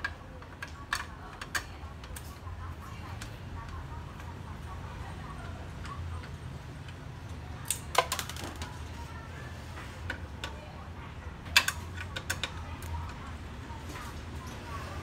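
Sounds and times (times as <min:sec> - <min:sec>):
screwdriver clicking on plastic: 0:00.0 - 0:04.4, 0:11.5 - 0:13.2.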